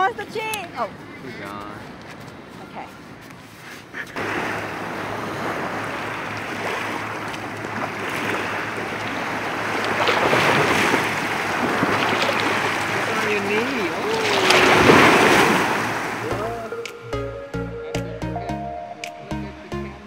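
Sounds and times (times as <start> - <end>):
waves washing onto beach: 4.1 - 16.7.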